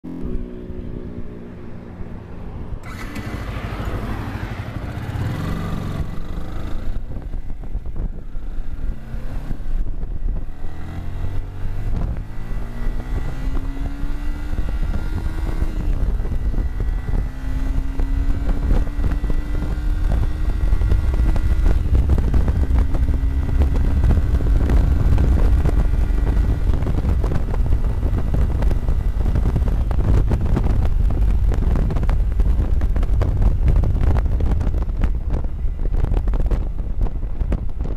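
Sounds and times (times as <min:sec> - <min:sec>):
motorcycle engine accelerating: 0:00.0 - 0:37.9
wind buffeting microphone: 0:00.3 - 0:37.9.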